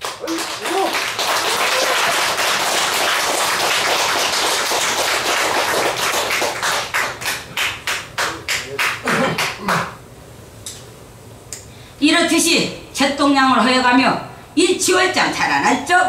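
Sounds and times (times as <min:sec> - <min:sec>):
audience applause: 0:00.0 - 0:09.9.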